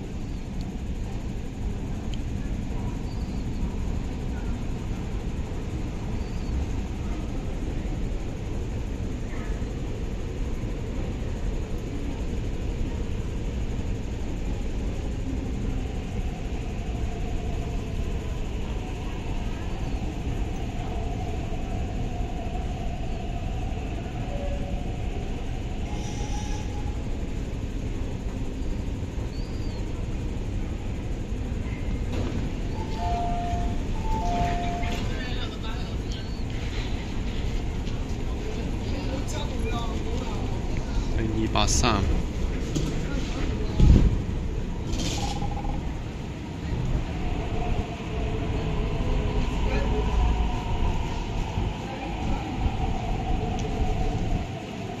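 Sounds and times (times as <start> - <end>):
train car rumble and hum: 0.0 - 55.0
faint wavering tone: 32.8 - 35.2.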